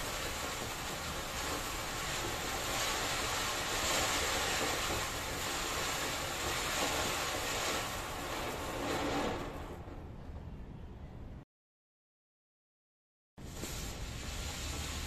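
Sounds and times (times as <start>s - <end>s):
firework fountain hissing sparks: 0.0s - 10.0s, 13.4s - 15.0s.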